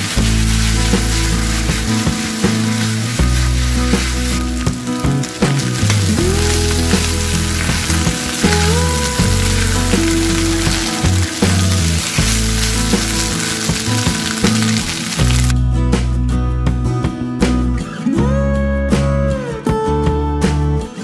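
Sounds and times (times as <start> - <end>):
meat sizzling in a wok: 0.0 - 15.5
background music: 0.0 - 21.0.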